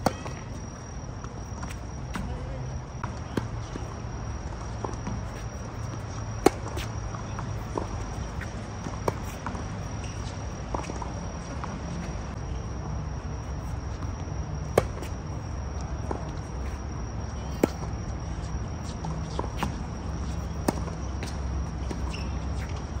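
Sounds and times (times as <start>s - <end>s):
tennis balls struck with rackets: 0.0s - 1.0s, 4.3s - 11.7s, 14.6s - 15.2s, 19.1s - 22.8s.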